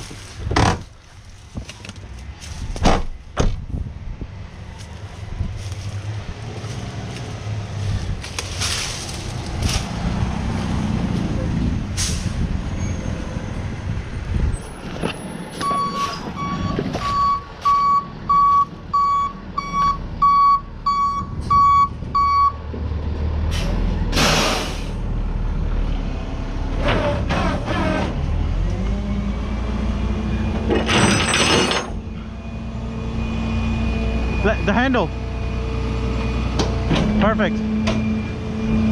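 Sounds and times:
backup alarm beeping: 0:15.6 - 0:22.6.

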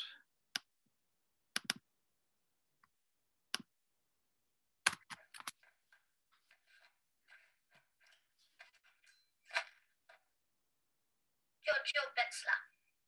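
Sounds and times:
computer mouse clicks: 0:01.5 - 0:01.9, 0:04.8 - 0:05.7
faint film soundtrack: 0:01.6 - 0:13.0.

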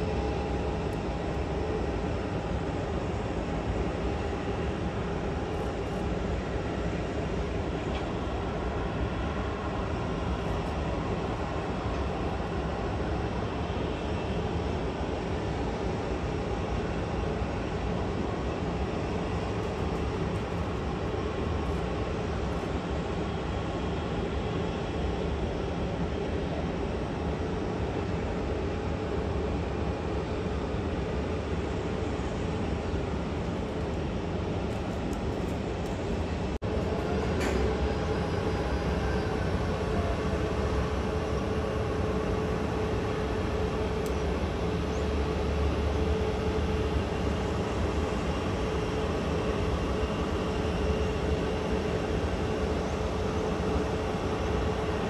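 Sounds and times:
faint engine whine: 0:00.0 - 0:55.0
jet engines rumbling: 0:00.0 - 0:55.0
jet engines roaring: 0:30.2 - 0:55.0.

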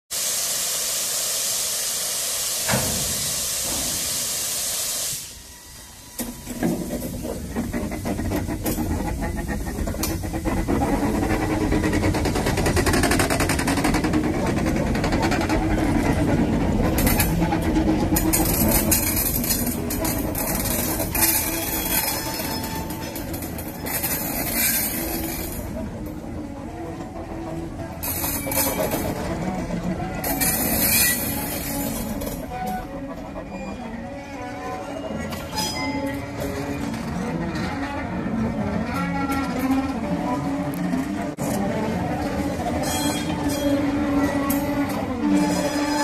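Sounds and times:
loud hiss of steam: 0:00.1 - 0:10.3
steam locomotive working hard: 0:00.1 - 0:46.0
wagons rumbling: 0:06.3 - 0:46.0.

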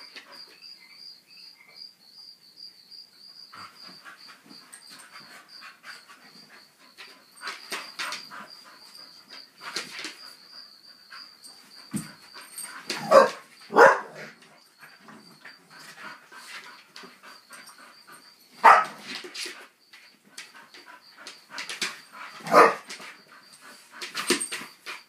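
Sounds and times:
dogs scuffling: 0:03.6 - 0:10.4, 0:11.4 - 0:25.0
dog barking: 0:13.0 - 0:14.3, 0:18.6 - 0:19.0, 0:22.4 - 0:22.9.

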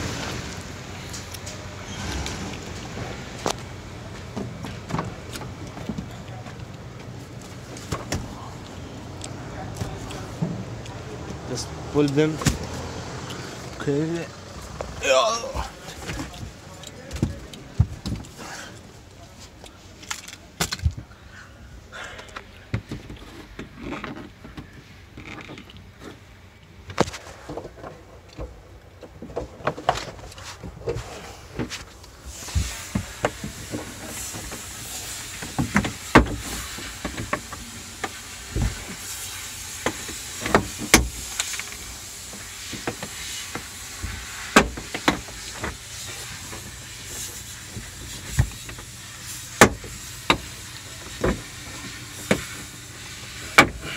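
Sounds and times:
steady hiss: 0:31.0 - 0:53.9.

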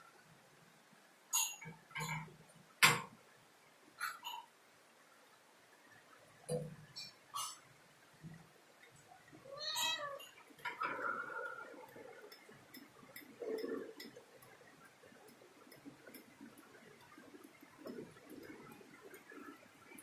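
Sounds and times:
cat meowing: 0:09.5 - 0:10.3.

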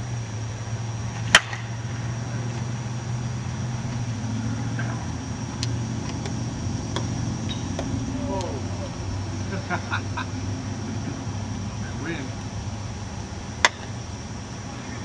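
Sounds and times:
steady low hum: 0:00.0 - 0:15.0
bat hitting ball: 0:01.2 - 0:01.8, 0:13.6 - 0:13.9.

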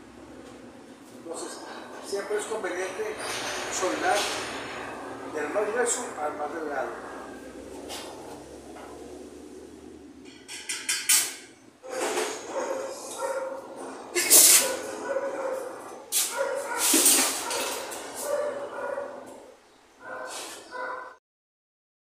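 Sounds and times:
dog barking: 0:11.8 - 0:13.8, 0:14.5 - 0:21.2.

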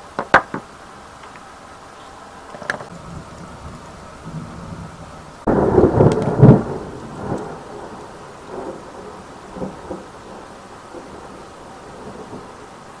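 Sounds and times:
small knocks: 0:00.1 - 0:01.4.

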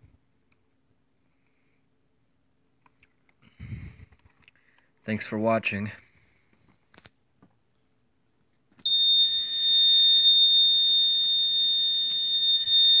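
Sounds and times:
high-pitched alarm tone: 0:08.9 - 0:13.0.

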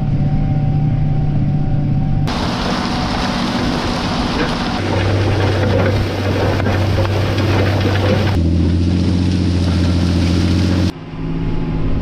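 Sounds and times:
low engine hum: 0:00.0 - 0:12.0
tractor diesel engine under load: 0:02.3 - 0:11.0
rushing noise: 0:02.3 - 0:11.9.

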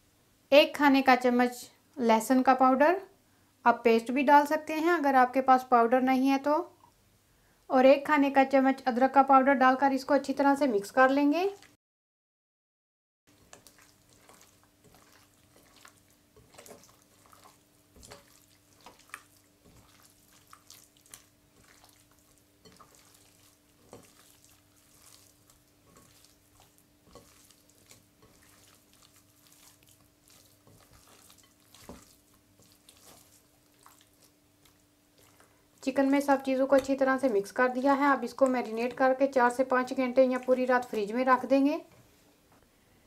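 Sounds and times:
faint steady hum: 0:03.0 - 0:04.2, 0:13.3 - 0:43.0
hands squelching raw chicken: 0:13.3 - 0:39.1.

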